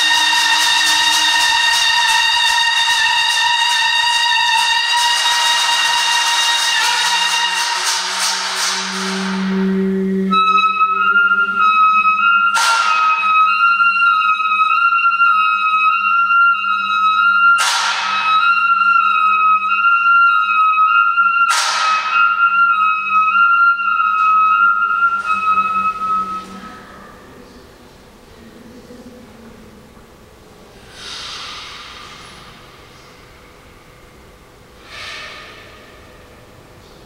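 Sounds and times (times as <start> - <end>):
flute holding high note: 0.0 - 27.8
low hum: 6.8 - 14.4
falling hissing sweeps: 30.7 - 34.0, 34.8 - 36.3.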